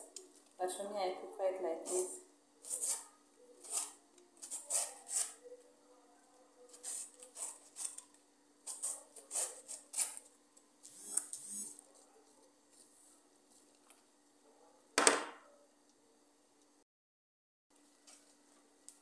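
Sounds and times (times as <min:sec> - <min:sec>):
knife slicing cabbage: 0:02.6 - 0:05.4, 0:06.7 - 0:10.3.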